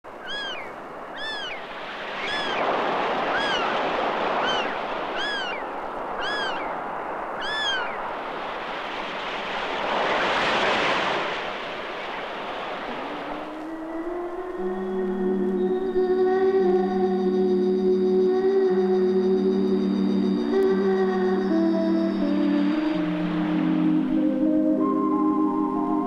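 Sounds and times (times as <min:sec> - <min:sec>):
sea surf breaking on beach: 0:00.1 - 0:16.0, 0:20.4 - 0:25.9
seagull crying: 0:00.2 - 0:06.8, 0:07.4 - 0:08.0.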